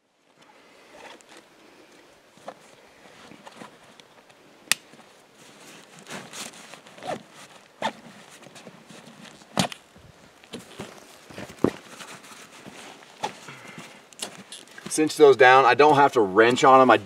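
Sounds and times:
nylon webbing scraping and rustling: 0.8 - 4.3, 5.0 - 15.1.

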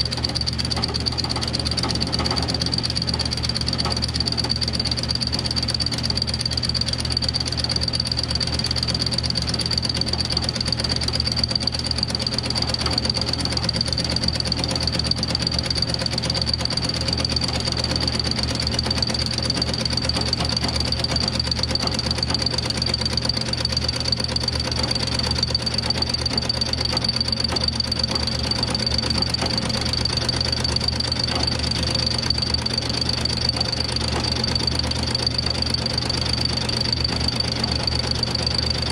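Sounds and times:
milling machine cutting metal: 9.4 - 38.9.

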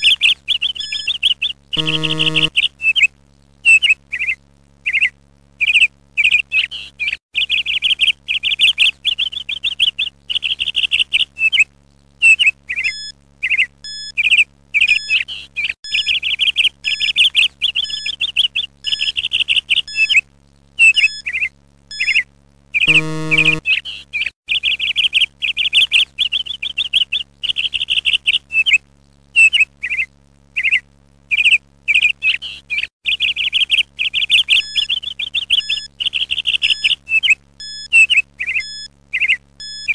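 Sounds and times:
songbird chirping and trilling: 0.0 - 3.0, 29.4 - 39.9
faint low hum: 1.4 - 2.6, 22.7 - 24.0
short buzzer tone: 1.8 - 2.5, 22.9 - 23.6.

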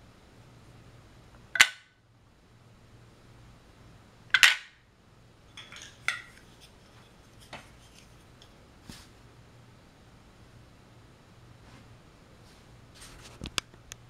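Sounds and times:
toy pieces clicking and knocking: 1.6 - 1.8.

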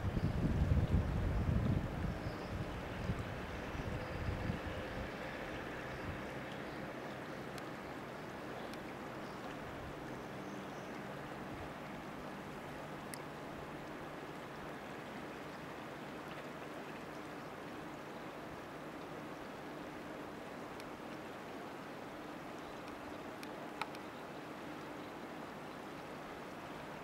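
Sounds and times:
river water running: 0.0 - 27.0
faint clicks: 6.5 - 7.8, 8.6 - 9.6, 13.0 - 14.0, 22.6 - 24.2.

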